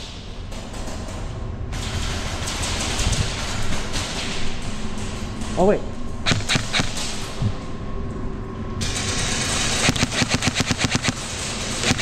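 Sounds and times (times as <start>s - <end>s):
airsoft rifle full-auto burst: 6.3s - 7.0s, 9.5s - 12.0s.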